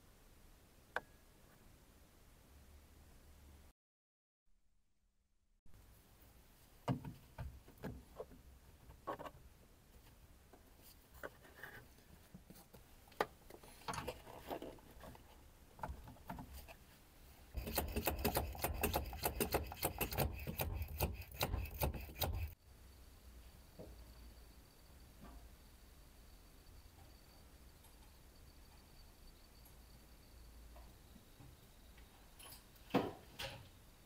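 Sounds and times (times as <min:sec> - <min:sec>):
rapid clicking and rattling: 0:17.6 - 0:22.6.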